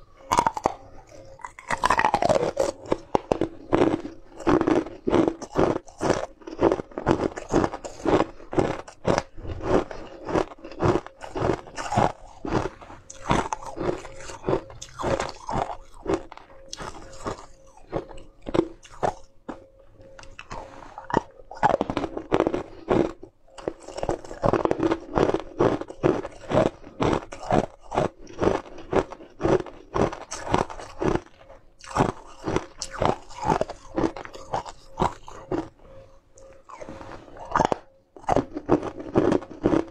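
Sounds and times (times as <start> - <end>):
ice cubes crunching: 0.0 - 39.9.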